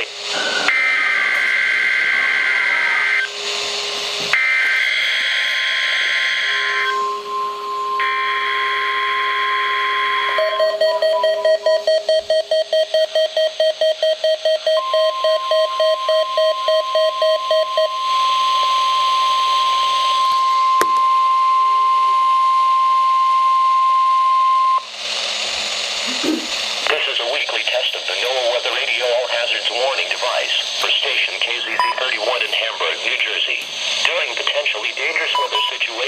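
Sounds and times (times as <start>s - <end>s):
broadcast hiss: 0.0s - 8.8s, 24.8s - 36.0s
steady warning alarm tone: 0.0s - 24.9s
burst of data noise: 24.8s - 36.0s
rapid alert beeps: 31.8s - 32.1s, 35.3s - 35.8s.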